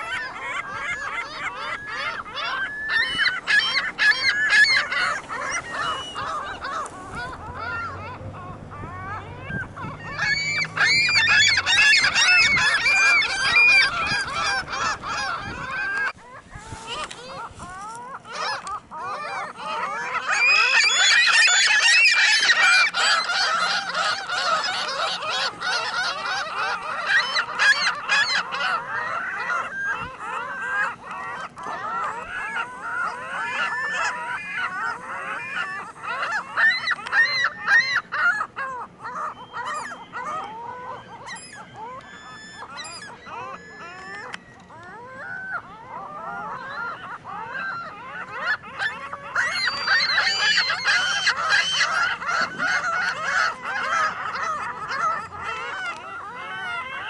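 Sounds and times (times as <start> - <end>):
gulls calling: 0.0 - 57.0.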